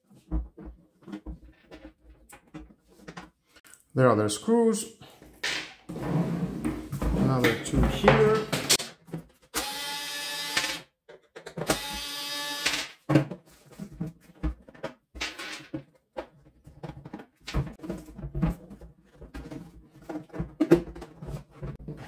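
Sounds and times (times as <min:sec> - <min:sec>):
cordless screwdriver whirring: 0:09.6 - 0:10.8.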